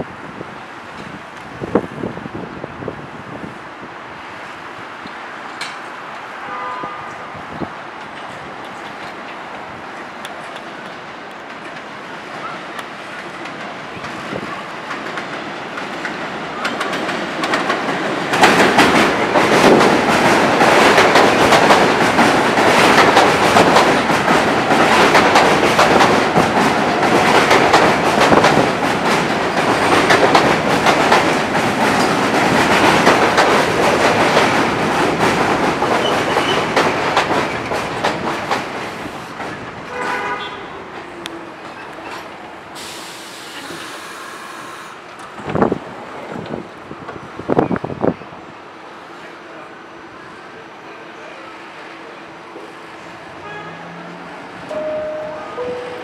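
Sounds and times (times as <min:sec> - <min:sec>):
subway wheels clattering on rails: 0:00.0 - 0:56.0
brief pitched tone: 0:54.7 - 0:56.0.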